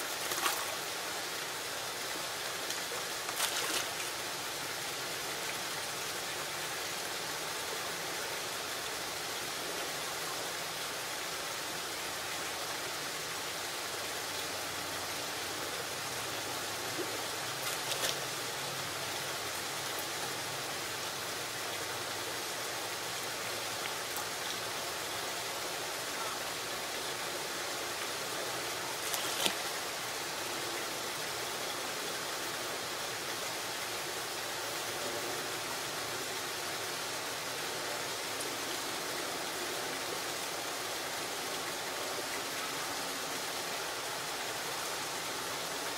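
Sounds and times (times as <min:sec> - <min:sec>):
water rushing: 0:00.0 - 0:45.9.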